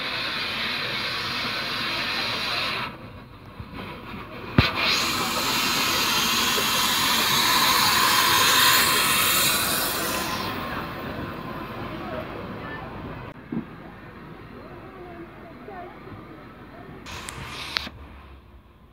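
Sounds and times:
steam locomotive hissing: 0.0s - 13.4s, 17.0s - 18.7s.

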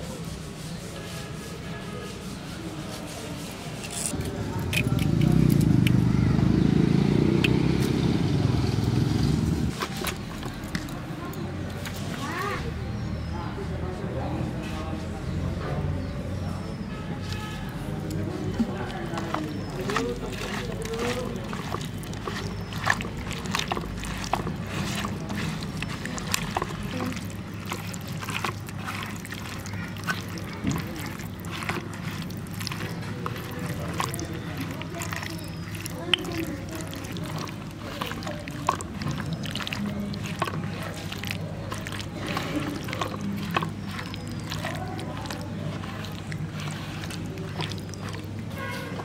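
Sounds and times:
hands squishing wet paste: 0.0s - 6.2s, 9.2s - 12.7s, 16.4s - 49.0s
motor vehicle engine rumble: 4.1s - 12.4s.

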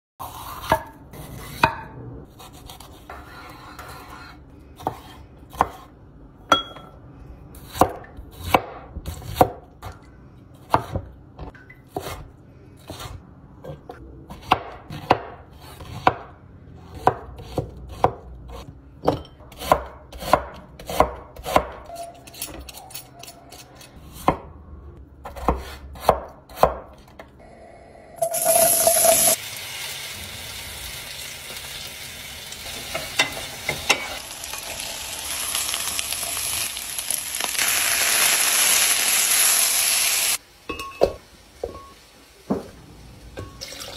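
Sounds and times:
knife chopping on cutting board: 7.6s - 9.9s, 14.3s - 21.9s, 25.2s - 27.2s
food sizzling in hot pan: 28.2s - 40.4s.

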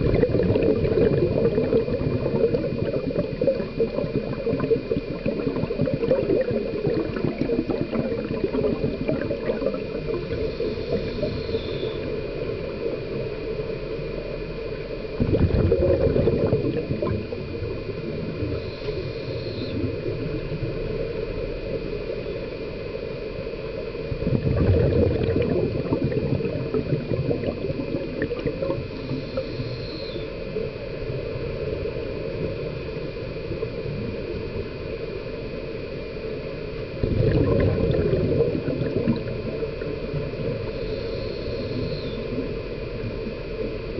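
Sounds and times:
low rush of water: 0.0s - 43.9s
regulator bubbles gurgling: 0.0s - 43.9s.

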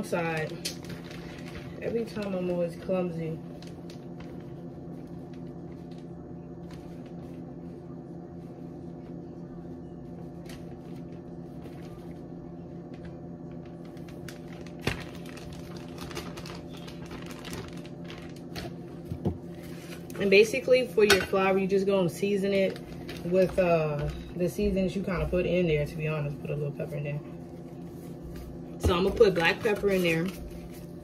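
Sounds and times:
plastic bag crinkling: 0.0s - 6.0s, 13.5s - 20.3s, 22.4s - 24.3s
steady low hum: 0.0s - 31.0s.

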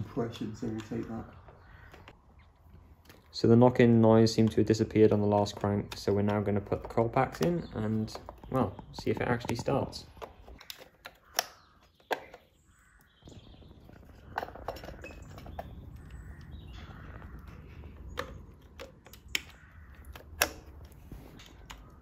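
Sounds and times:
plastic connectors clicking: 0.5s - 2.2s, 3.0s - 13.2s, 14.1s - 22.0s.

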